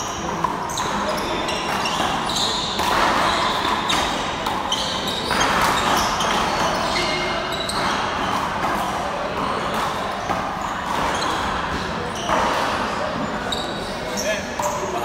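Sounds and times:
handball hits and bounces: 0.1s - 13.4s.

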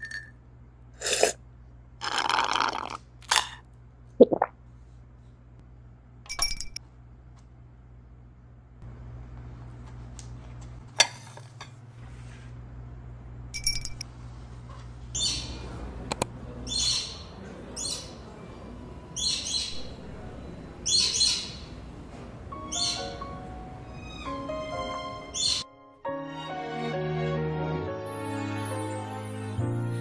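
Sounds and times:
low steady hum: 2.9s - 22.6s
bird chirping: 15.2s - 15.6s, 19.0s - 21.8s, 22.6s - 23.3s.

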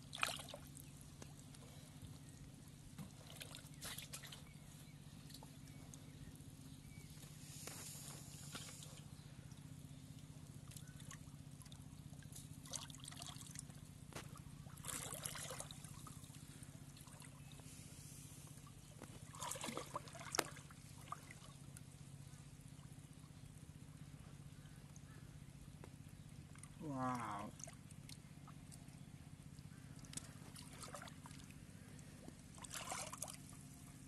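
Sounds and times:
steady low hum: 0.0s - 34.0s
hands splashing muddy water: 14.7s - 17.4s, 19.1s - 21.6s, 30.0s - 33.7s.

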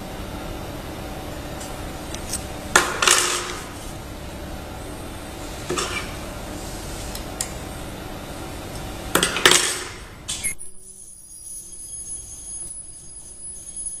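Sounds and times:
sewing machine humming: 0.0s - 10.5s.

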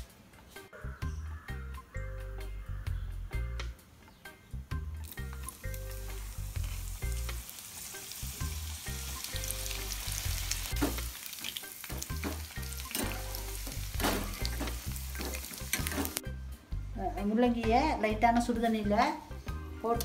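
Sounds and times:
vegetables sizzling in hot oil: 5.0s - 16.2s
metal spoon scraping a pan: 12.2s - 16.2s.

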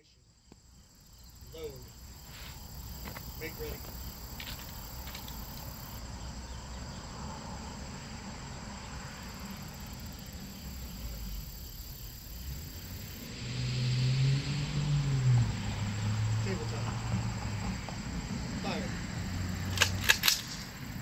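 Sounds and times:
insects chirping: 0.0s - 21.0s
low traffic hum: 0.0s - 21.0s
man calling out loudly: 1.5s - 1.9s.

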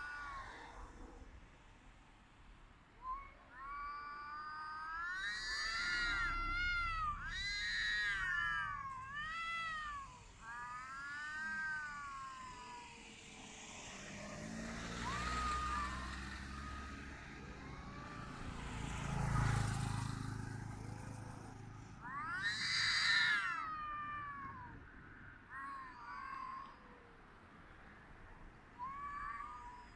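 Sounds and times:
cat yowling: 0.0s - 1.2s, 3.0s - 13.2s, 14.2s - 20.2s, 22.0s - 27.2s, 28.8s - 29.9s
low rumble: 5.8s - 10.0s.

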